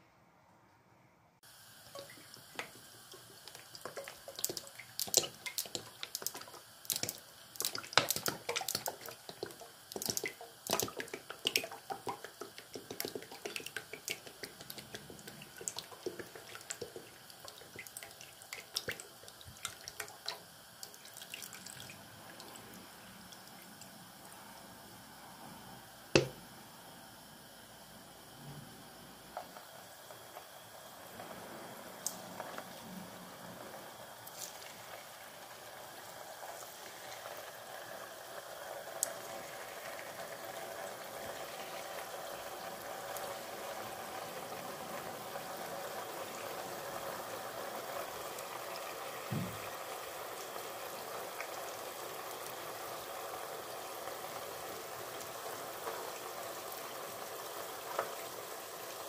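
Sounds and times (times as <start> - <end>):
faint hiss: 0.0 - 59.0
oil crackling and popping: 1.6 - 21.9.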